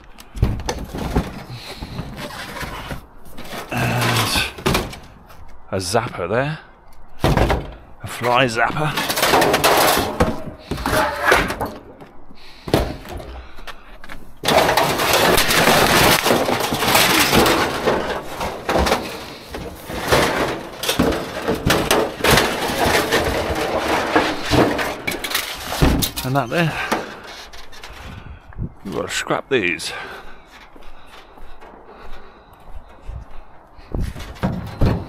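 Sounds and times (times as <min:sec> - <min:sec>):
scrap rummaged in dumpster: 0:00.3 - 0:05.4, 0:07.2 - 0:28.3, 0:34.0 - 0:35.0.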